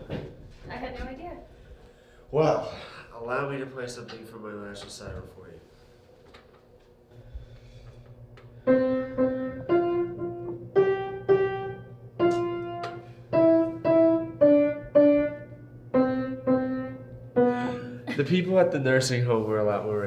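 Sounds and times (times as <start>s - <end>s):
piano single-note melody: 8.7s - 18.0s.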